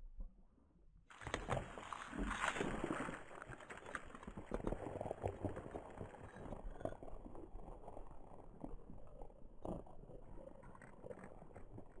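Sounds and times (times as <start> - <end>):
faint crackles and ticks: 1.1 - 12.0.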